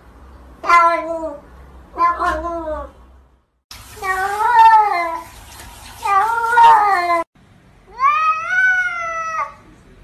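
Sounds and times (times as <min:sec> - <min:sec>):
cats meowing: 0:04.0 - 0:05.2, 0:06.0 - 0:07.2, 0:07.9 - 0:09.6.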